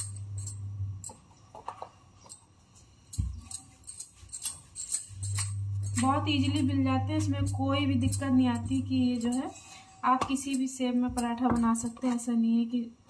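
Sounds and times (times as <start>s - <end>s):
bangles jingling: 0.0s - 1.3s, 2.2s - 9.6s, 10.4s - 12.0s.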